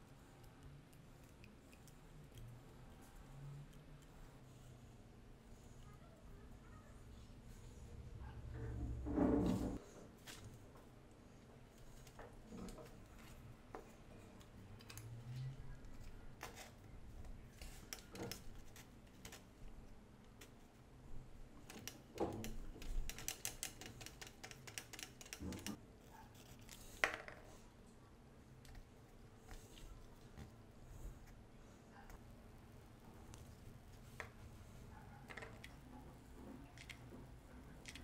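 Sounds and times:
clicks of small plastic and wooden parts: 37.8 - 38.0.

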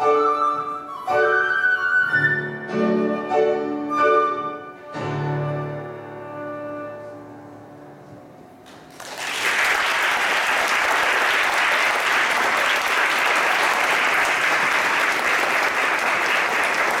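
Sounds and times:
audience applauding: 8.7 - 17.0.

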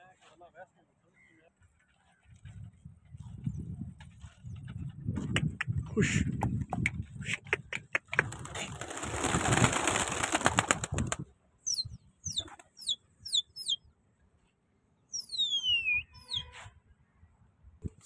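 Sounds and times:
pigeon wings flapping: 7.6 - 11.3
high bird chirps: 11.6 - 13.9, 15.0 - 16.6.

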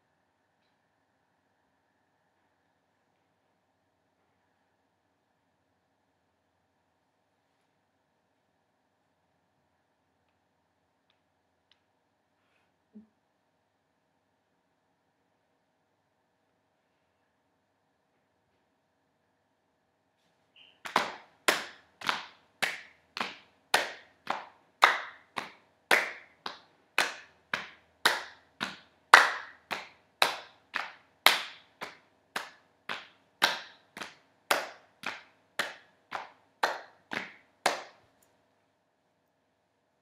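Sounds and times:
hands clapping in a slow beat: 20.8 - 38.1.

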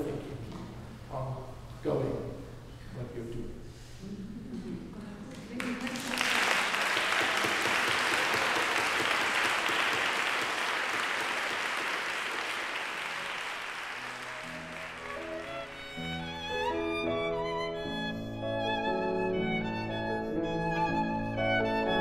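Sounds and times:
audience applauding: 5.3 - 16.6
instrumental music with held notes: 14.0 - 22.0.

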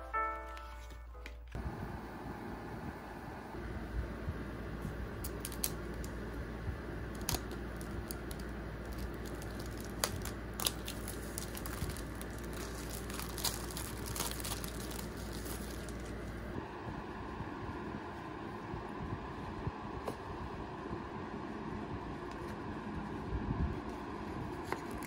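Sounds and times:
steady low hum: 0.0 - 25.0
plastic shrink-wrap crinkling: 5.2 - 6.2, 7.1 - 16.6.

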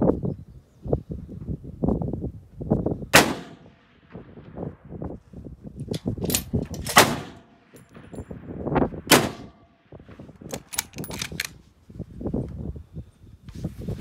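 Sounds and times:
constant low rumble: 1.2 - 14.0
rifle shots: 3.1 - 4.2, 6.8 - 8.1, 9.1 - 9.6
sharp clicks: 10.5 - 11.6.

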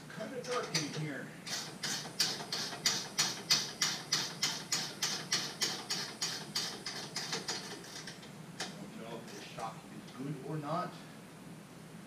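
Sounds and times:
ratchet wrench clicking: 0.5 - 8.2.

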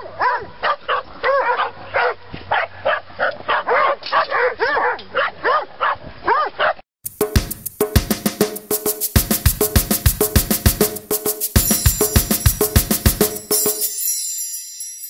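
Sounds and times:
dogs barking and yipping: 0.0 - 6.8.

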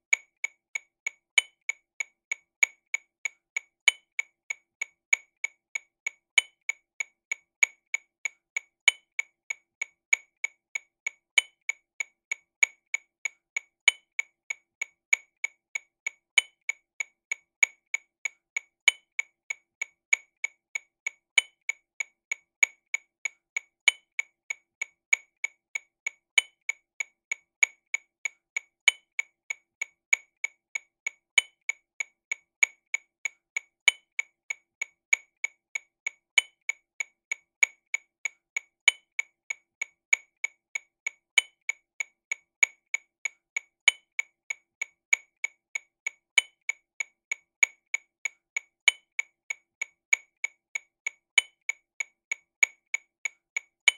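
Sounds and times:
metronome clicks: 43.8 - 44.2.

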